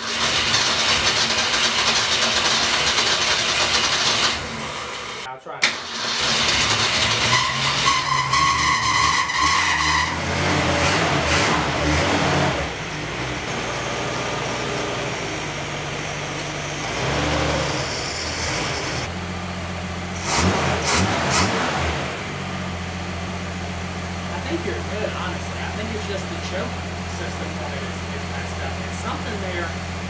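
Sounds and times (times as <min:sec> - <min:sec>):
car engine idling: 0:00.0 - 0:07.3, 0:12.6 - 0:16.9, 0:17.7 - 0:30.0.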